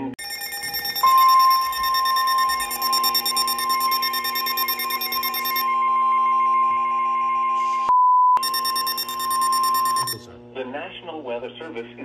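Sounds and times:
weather radio alarm tone: 0.2 - 5.7, 8.4 - 10.2
pulsing beep: 0.2 - 5.8, 8.0 - 10.2.

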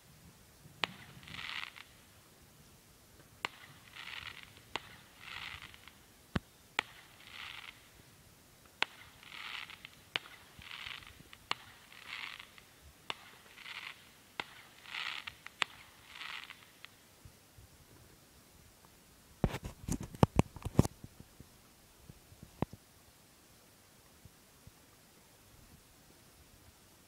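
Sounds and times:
distant fireworks bangs: 0.8 - 1.9, 3.4 - 6.0, 6.8 - 7.9, 8.8 - 16.9.

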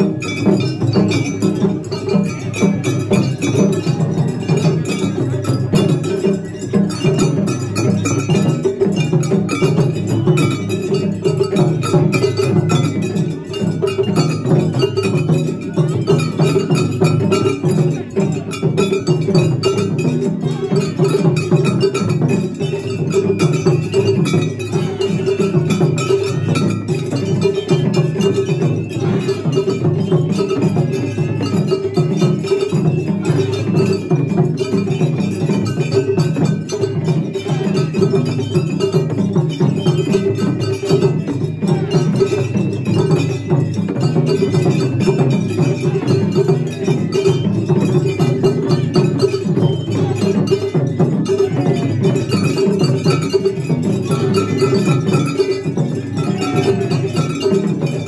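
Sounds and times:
drums beating fast rhythm: 0.0 - 58.0.

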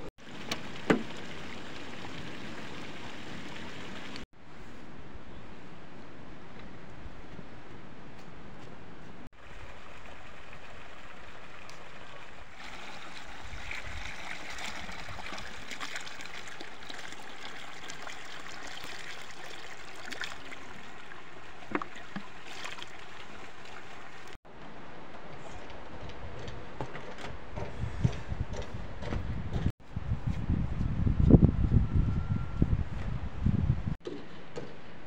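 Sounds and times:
water running and trickling: 0.2 - 4.3, 9.4 - 24.4
light splashes: 9.4 - 24.4.

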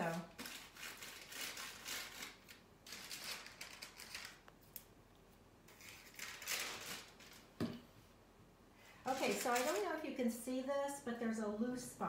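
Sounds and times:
paper rustling under hand: 0.0 - 4.5, 5.7 - 7.6, 9.0 - 10.0.

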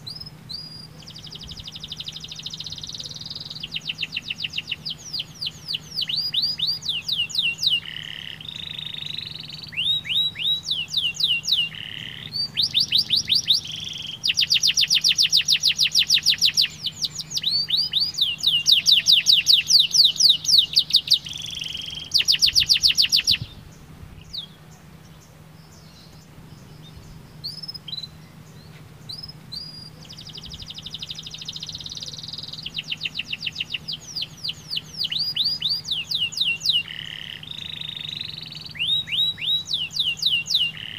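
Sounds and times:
canary chirps: 0.0 - 40.9
canary singing trills: 0.0 - 40.9.

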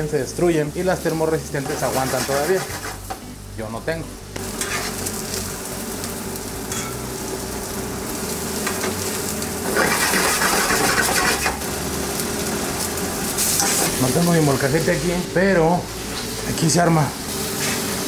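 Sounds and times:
vegetables sizzling in a frying pan: 0.0 - 18.0
metal utensil stirring in pan: 4.5 - 5.1, 9.6 - 11.6, 13.4 - 14.0.

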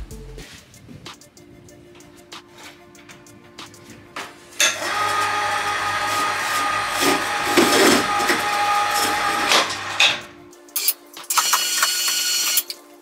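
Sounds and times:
electric hoist motor whining: 4.6 - 12.8.

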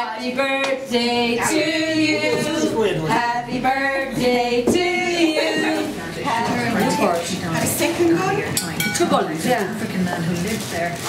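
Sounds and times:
mixed voices singing: 0.0 - 8.3.

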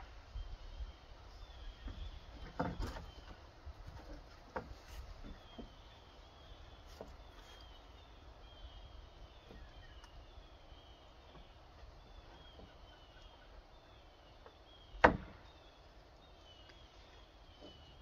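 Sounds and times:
wooden boards knocking: 15.0 - 15.4.

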